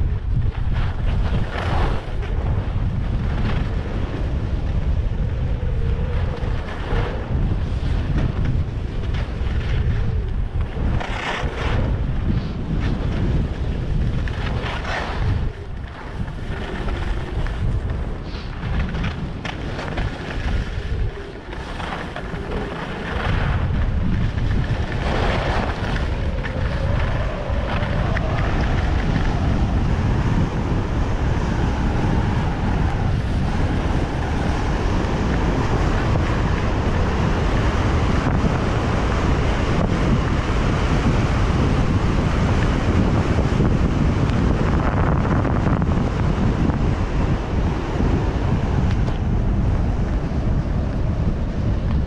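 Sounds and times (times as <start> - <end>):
wind buffeting microphone: 0.0 - 52.0
skis scraping on packed snow: 0.5 - 4.6, 6.4 - 29.5.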